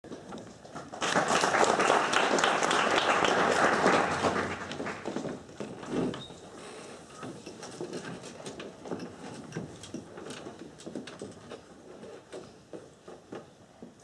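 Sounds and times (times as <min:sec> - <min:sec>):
audience applauding: 0:00.9 - 0:05.4.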